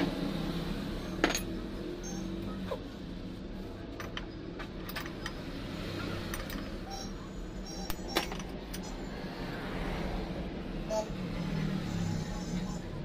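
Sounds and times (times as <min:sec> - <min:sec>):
metal tools clinking: 0:01.1 - 0:02.2.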